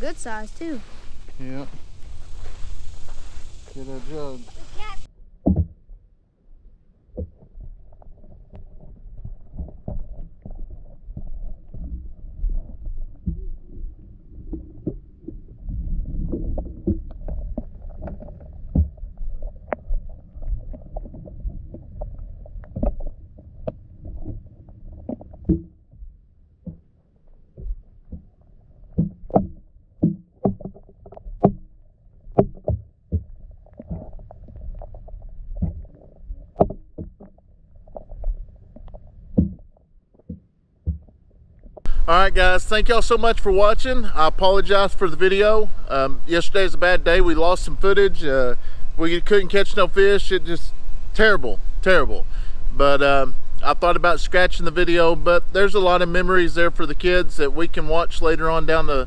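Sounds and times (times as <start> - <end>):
underwater water rumble: 0.0 - 59.0.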